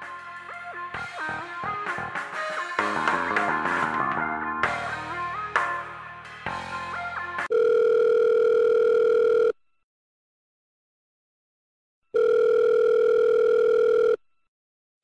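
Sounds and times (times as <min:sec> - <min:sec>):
music: 0:00.0 - 0:07.5
telephone ringback tone: 0:07.5 - 0:09.6, 0:12.2 - 0:14.2.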